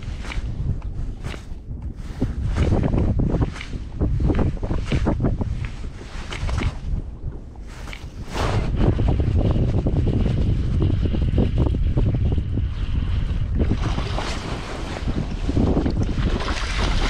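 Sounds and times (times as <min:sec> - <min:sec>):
wind buffeting microphone: 0:00.0 - 0:17.0
water lapping against kayak: 0:10.8 - 0:17.0.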